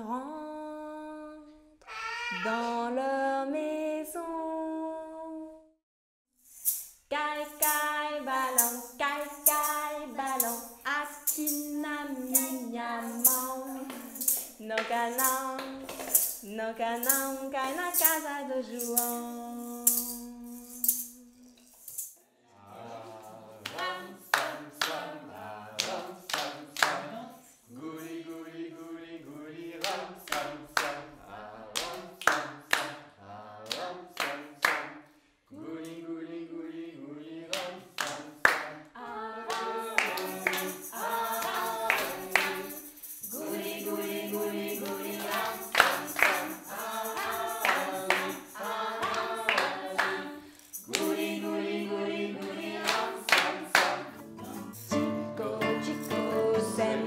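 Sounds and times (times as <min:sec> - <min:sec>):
group singing: 0:07.1 - 0:20.8, 0:22.5 - 0:57.0
hand clapping: 0:12.3 - 0:16.4, 0:23.6 - 0:25.2, 0:25.8 - 0:27.2, 0:29.8 - 0:31.1, 0:31.8 - 0:33.0, 0:33.7 - 0:35.1, 0:37.5 - 0:38.8, 0:39.5 - 0:55.2.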